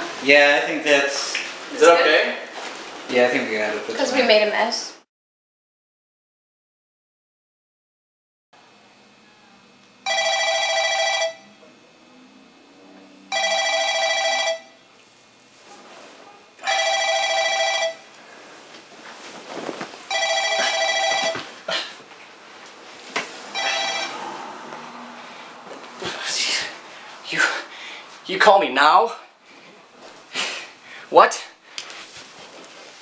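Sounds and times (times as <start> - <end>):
phone ringing: 10.0 - 11.6, 13.3 - 14.9, 16.6 - 18.1, 20.1 - 21.5, 23.5 - 24.4
bedding rustling: 18.2 - 24.0, 31.9 - 33.0.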